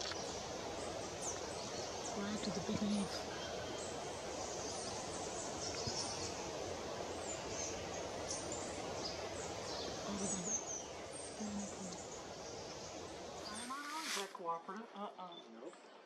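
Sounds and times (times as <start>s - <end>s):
steady forest hiss: 0.0s - 14.6s
small birds chirping and whistling: 7.2s - 14.3s.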